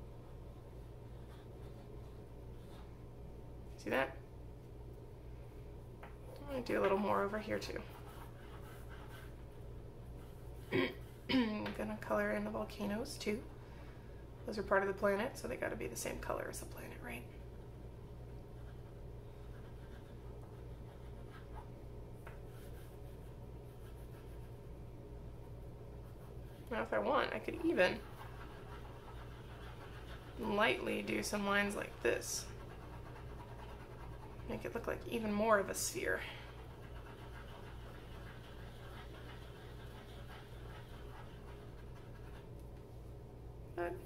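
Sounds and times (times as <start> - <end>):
steady low hum: 0.0 - 44.0
crayon scratching on paper: 6.8 - 9.6, 18.6 - 21.7, 26.0 - 42.5.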